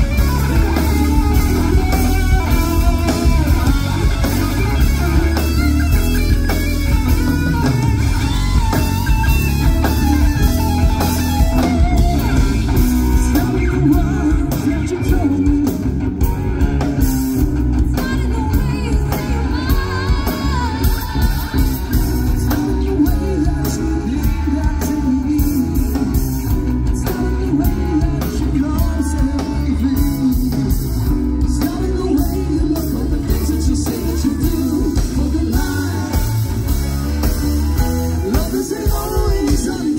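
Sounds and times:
live rock band playing: 0.0s - 39.9s
person singing: 13.0s - 16.0s, 17.8s - 36.5s, 37.8s - 39.9s.

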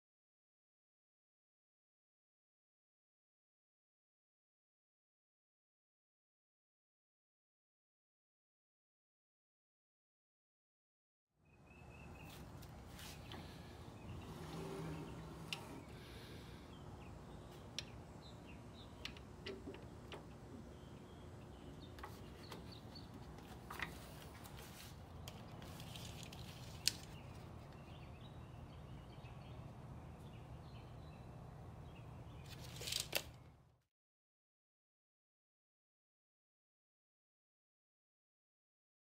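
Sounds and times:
steady low hum: 11.8s - 26.3s
saw fence sliding clicks and taps: 14.6s - 15.9s.

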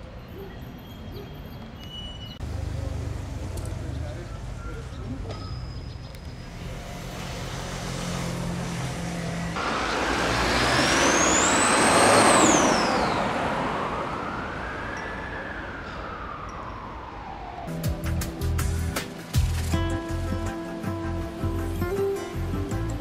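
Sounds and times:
motor vehicle passing by: 6.3s - 14.9s
high whine: 9.6s - 20.4s.

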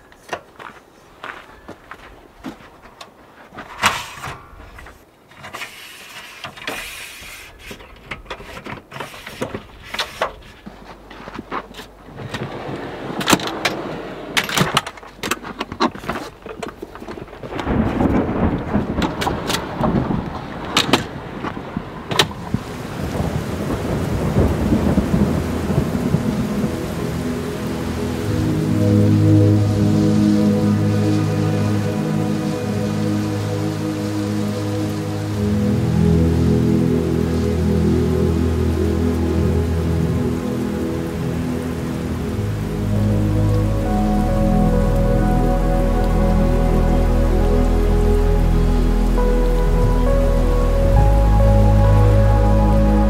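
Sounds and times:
steady rain: 0.0s - 53.0s
low roll of thunder: 17.5s - 32.0s.

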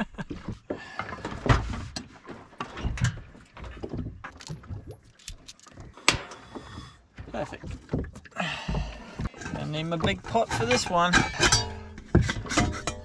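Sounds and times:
gear knocking and clattering: 7.2s - 13.0s.

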